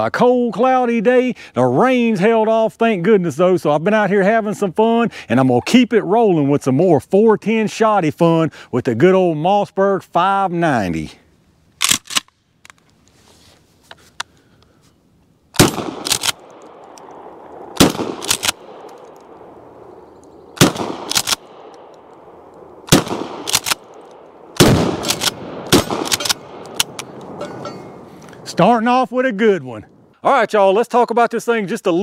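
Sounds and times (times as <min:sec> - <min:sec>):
shotgun shots: 0:15.6 - 0:28.1.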